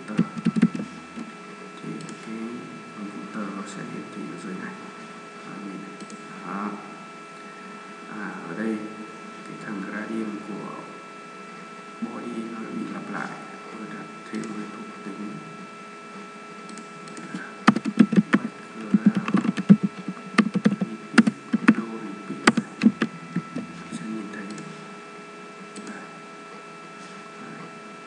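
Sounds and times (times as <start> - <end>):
faint electrical hum: 0.0 - 28.0
keyboard keys clicking: 0.1 - 0.8, 16.7 - 21.8, 22.4 - 23.6, 25.8 - 26.0.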